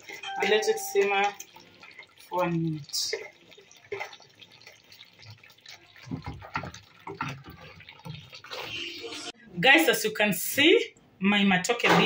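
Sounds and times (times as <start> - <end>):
sauce bubbling and popping: 0.0 - 9.4.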